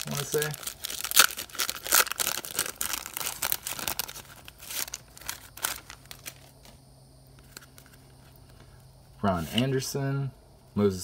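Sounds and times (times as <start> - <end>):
paper wrapper tearing and crinkling: 0.0 - 6.8.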